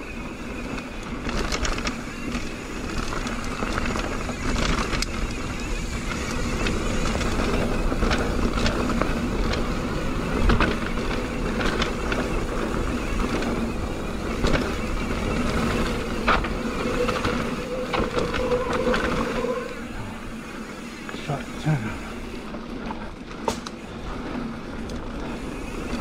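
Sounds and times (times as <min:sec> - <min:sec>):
bike rattling: 0:00.0 - 0:26.0
tyres rolling on dirt: 0:00.0 - 0:26.0
bike knocking on bumps: 0:01.2 - 0:18.6
wind rushing over microphone: 0:03.3 - 0:20.5.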